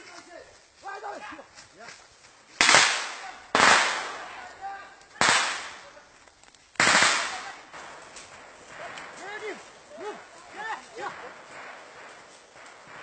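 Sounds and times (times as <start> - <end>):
gunshots with echo: 2.6 - 4.4, 5.2 - 5.9, 6.8 - 9.8, 11.0 - 13.0.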